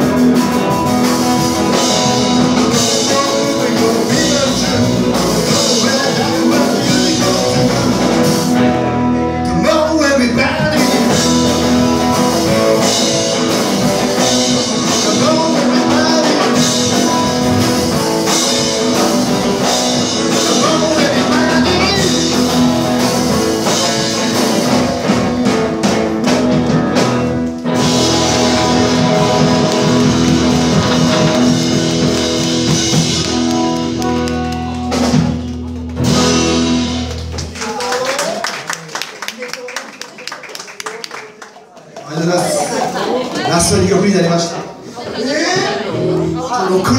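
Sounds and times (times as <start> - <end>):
rock and roll band playing: 0.0 - 39.2, 42.2 - 46.9
person singing: 0.4 - 12.6, 14.1 - 25.6.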